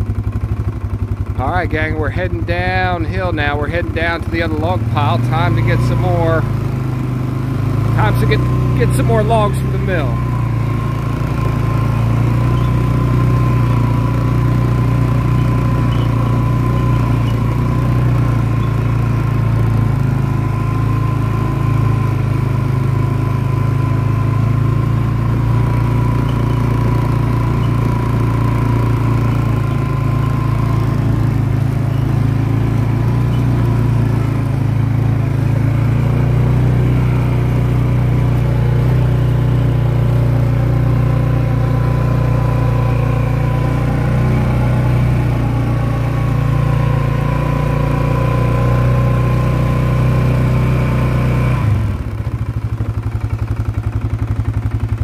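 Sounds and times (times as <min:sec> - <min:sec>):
quad bike engine running: 0:00.0 - 0:55.0.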